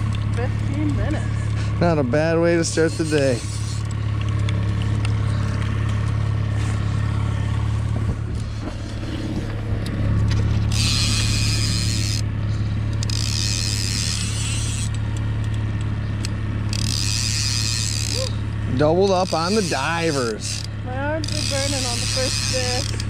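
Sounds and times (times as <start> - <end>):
outboard motor running: 0.0 - 23.0
fishing reel whirring: 2.2 - 4.1, 10.3 - 15.0, 16.2 - 23.0.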